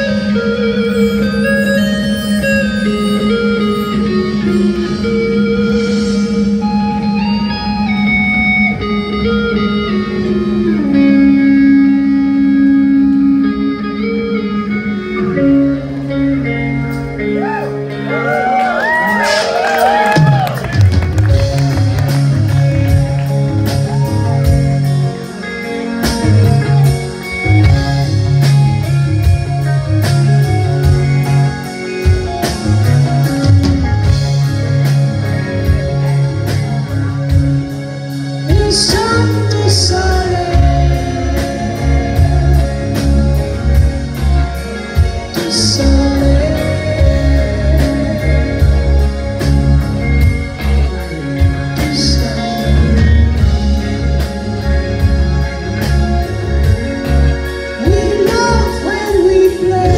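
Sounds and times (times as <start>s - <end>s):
bass guitar: 0.0s - 59.9s
drums: 0.0s - 59.9s
electric guitar: 0.0s - 59.9s
keyboards: 0.0s - 59.9s
person singing: 38.4s - 44.2s, 45.0s - 49.7s, 51.0s - 54.3s, 57.7s - 59.9s.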